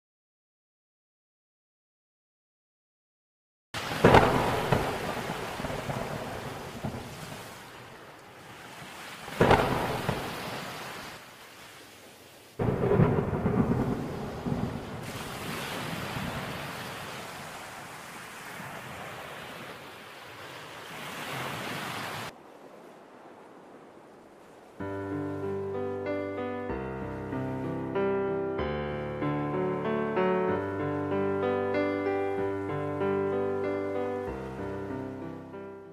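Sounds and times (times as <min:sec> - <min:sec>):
thunder claps rolling: 0:03.8 - 0:07.3, 0:09.4 - 0:10.7, 0:12.6 - 0:15.4
steady rain: 0:03.8 - 0:18.8.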